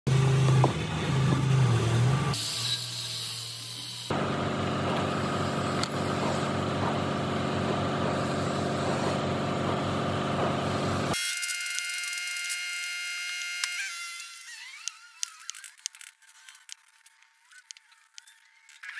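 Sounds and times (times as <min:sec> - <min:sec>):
steady mechanical hum: 0:00.1 - 0:11.2.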